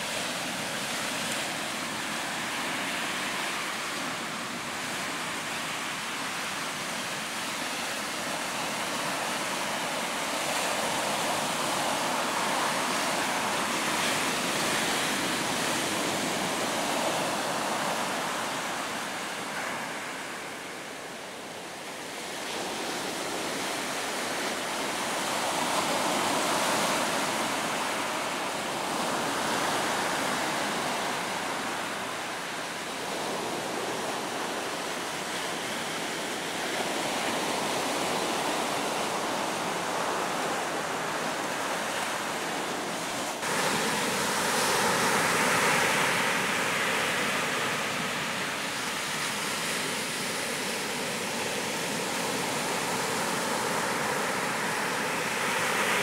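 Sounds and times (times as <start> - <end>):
surf breaking on sandy beach: 22.1 - 56.0.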